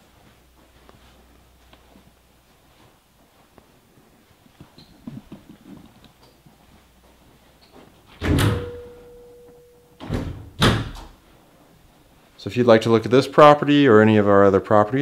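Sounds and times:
closet door thunk: 8.2 - 9.0, 10.0 - 11.1
faint ringing tone: 8.6 - 10.0.

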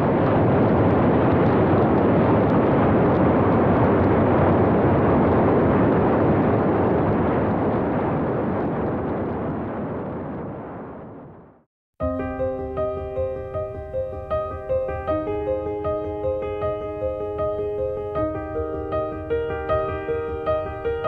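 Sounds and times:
wind rush on microphone: 0.0 - 11.7, 12.4 - 21.0.

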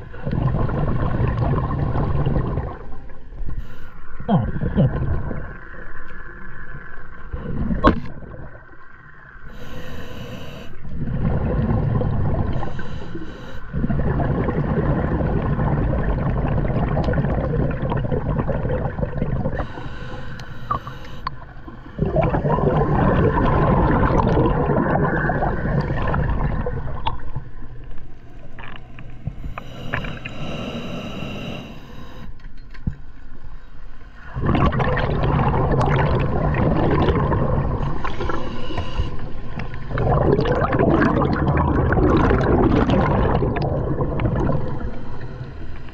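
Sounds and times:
diver breathing through regulator: 9.5 - 11.8, 12.5 - 13.9, 19.4 - 22.5, 29.3 - 32.4, 37.9 - 41.4.

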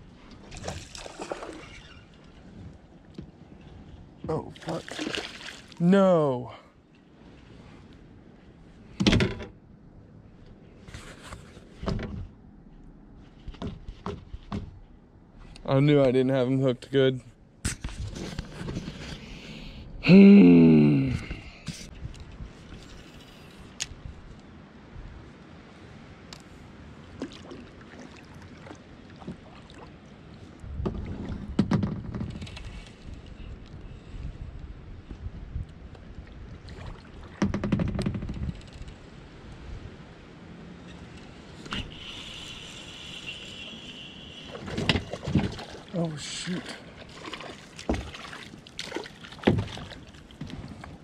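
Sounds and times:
paddle splashing in water: 0.4 - 2.4, 4.5 - 5.8, 27.0 - 30.1, 41.7 - 51.0
man groaning: 20.0 - 21.6
paddle knocking against kayak: 49.3 - 50.6.

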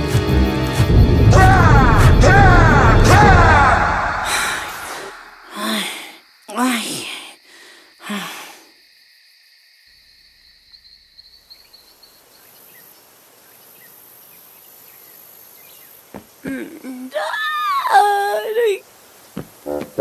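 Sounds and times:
crickets chirring: 4.2 - 20.0
boy's nervous vocal sound: 4.3 - 7.4, 16.4 - 18.8
faint outdoor hiss: 4.9 - 20.0.

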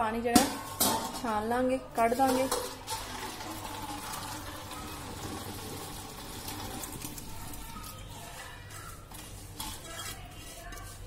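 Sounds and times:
water pouring through strainer into sink: 2.7 - 7.6.

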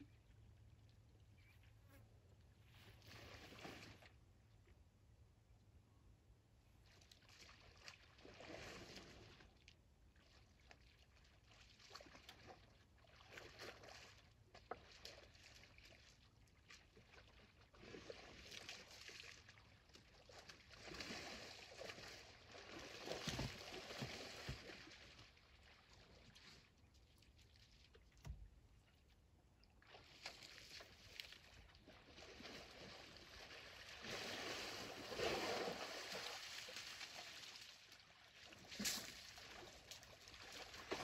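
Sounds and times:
elephants splashing in mud: 20.3 - 25.3, 30.0 - 37.9.

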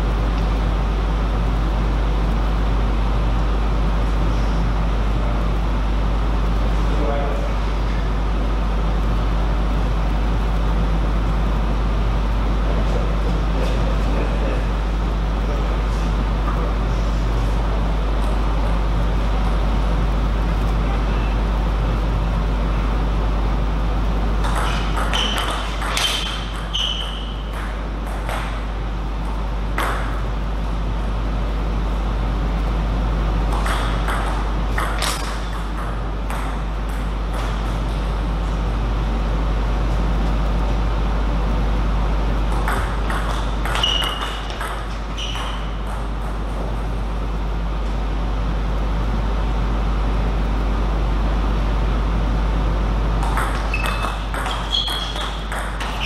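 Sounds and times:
steady low hum: 0.0 - 56.0
table tennis ball strikes: 24.4 - 28.7, 29.7 - 30.2, 33.5 - 38.0, 42.5 - 46.5, 53.2 - 56.0.

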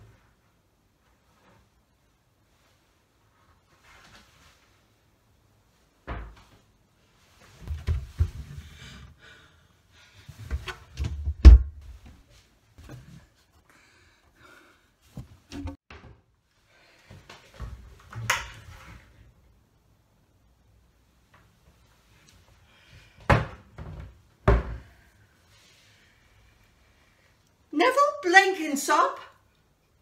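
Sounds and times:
cupboard doors knocking and rattling: 23.3 - 24.8.

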